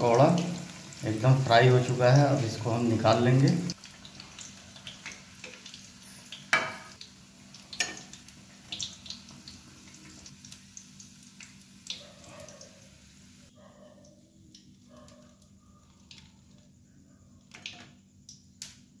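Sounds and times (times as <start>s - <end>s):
hot oil sizzling: 0.0s - 13.6s.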